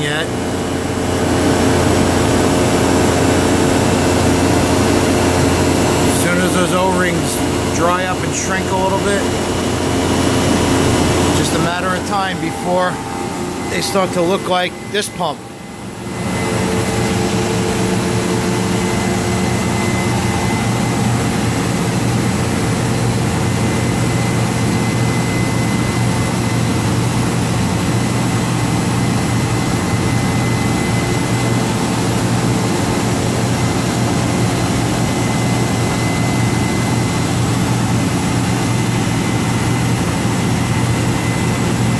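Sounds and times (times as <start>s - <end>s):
vacuum pump humming: 0.0s - 41.9s
thin high tone: 11.4s - 21.9s.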